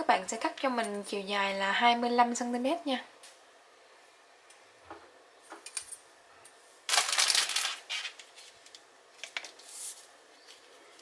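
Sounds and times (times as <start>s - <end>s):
plastic crackling: 6.9s - 9.7s.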